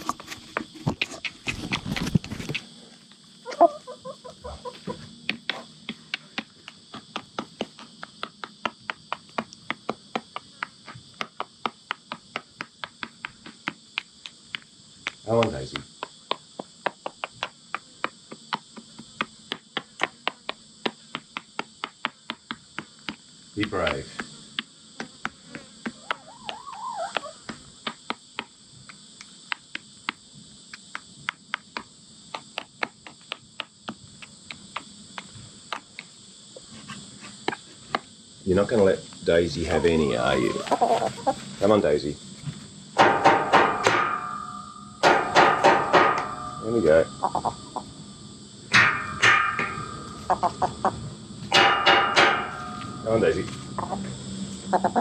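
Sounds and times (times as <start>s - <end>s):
chickens clucking: 0.0s - 8.5s, 25.8s - 28.0s, 39.6s - 41.8s, 43.0s - 48.0s, 48.8s - 55.0s
high-pitched insect drone: 0.0s - 55.0s.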